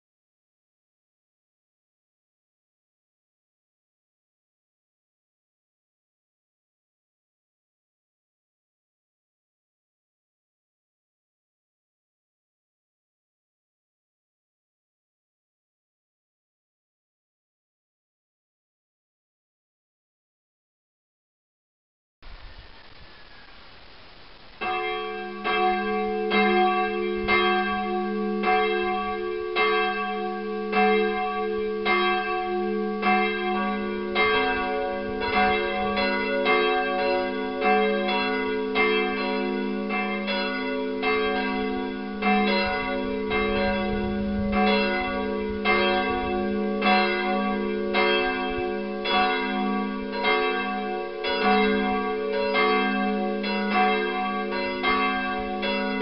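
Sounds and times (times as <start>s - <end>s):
church bell ringing: 24.6s - 56.0s.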